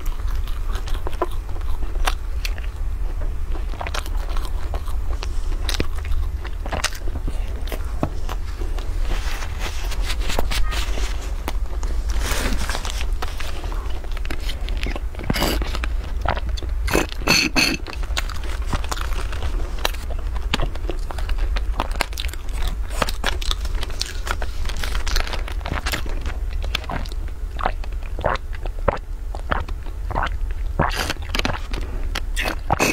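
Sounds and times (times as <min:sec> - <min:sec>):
steady low hum: 0:00.0 - 0:32.9
plastic wrap crinkling: 0:08.4 - 0:16.2
sipping through straws: 0:15.2 - 0:15.8, 0:16.9 - 0:17.9, 0:32.4 - 0:32.9.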